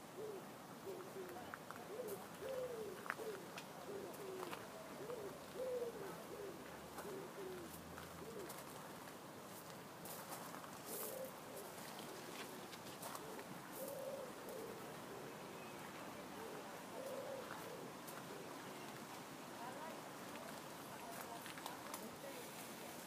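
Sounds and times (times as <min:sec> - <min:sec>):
pigeon cooing: 0:00.0 - 0:08.8, 0:10.9 - 0:19.0.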